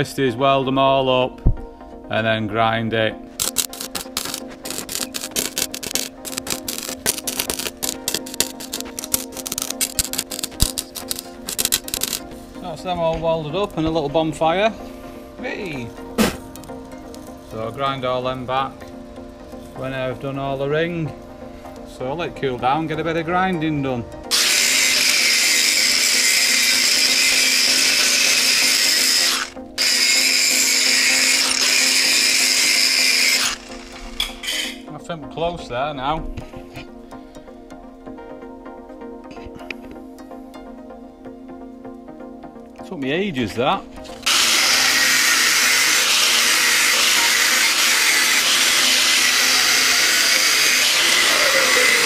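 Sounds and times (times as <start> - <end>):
angle grinder grinding steel: 3.4 - 12.3, 24.3 - 34.8, 44.1 - 52.0.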